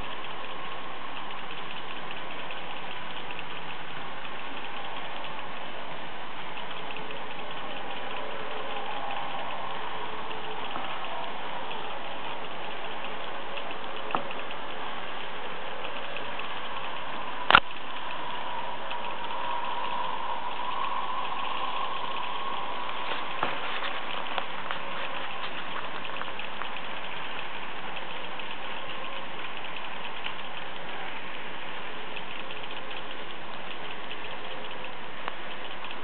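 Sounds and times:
faint motor whine: 0:00.0 - 0:36.0
model trains rolling on track: 0:00.0 - 0:36.0
sharp click: 0:15.8 - 0:18.3.

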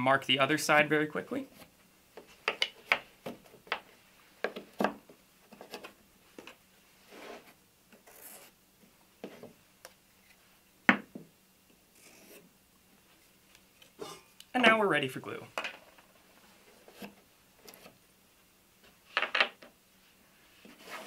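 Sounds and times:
wooden pieces knocking: 0:19.2 - 0:19.7.

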